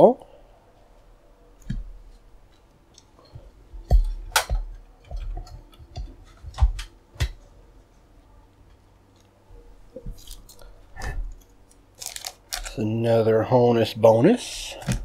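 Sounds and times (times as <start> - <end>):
foil card packs clicking and tapping: 12.0 - 12.8.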